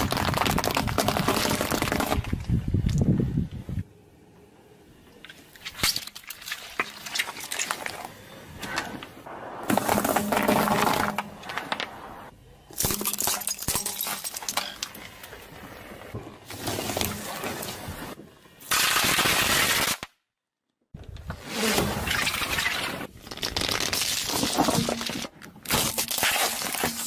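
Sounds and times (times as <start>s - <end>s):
car tyre crushing objects: 0.0s - 2.5s, 5.6s - 20.1s, 21.2s - 27.0s
fireworks cracking under tyre: 0.0s - 3.0s, 9.3s - 15.4s, 16.4s - 20.2s, 21.6s - 27.0s
foil wrappers crinkling: 23.2s - 27.0s.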